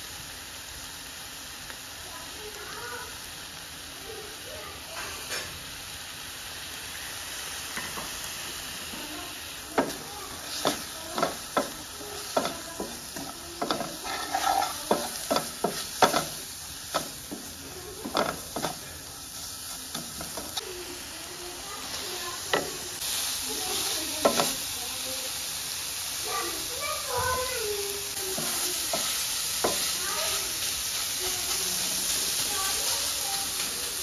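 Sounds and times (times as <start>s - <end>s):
onions sizzling in a frying pan: 0.0s - 34.0s
wooden spatula scraping a pan: 9.7s - 18.8s.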